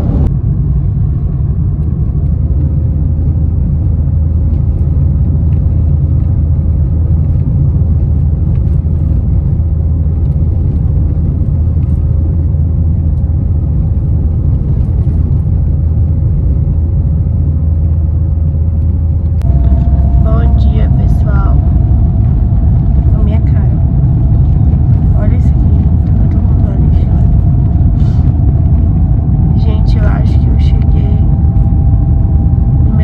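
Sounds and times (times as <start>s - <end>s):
car rumble inside cabin: 0.0s - 33.0s
faint steady hum: 18.8s - 33.0s.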